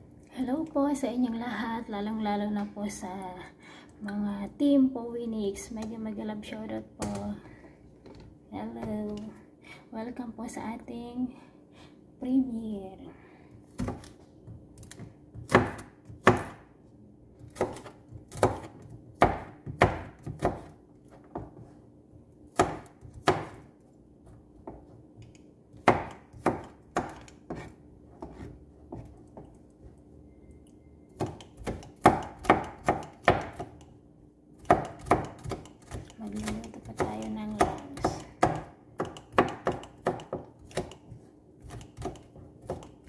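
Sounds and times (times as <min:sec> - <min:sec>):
knife chopping on cutting board: 0:13.7 - 0:16.7, 0:17.4 - 0:21.8, 0:22.5 - 0:23.7, 0:24.6 - 0:29.5, 0:31.2 - 0:33.9, 0:34.6 - 0:43.0.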